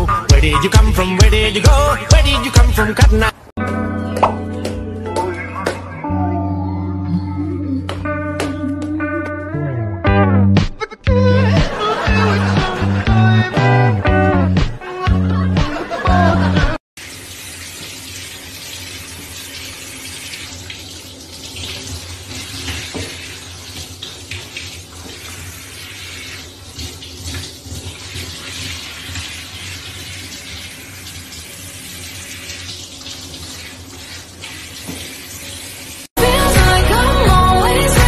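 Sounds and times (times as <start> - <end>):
shower head water spraying: 17.0 - 36.1.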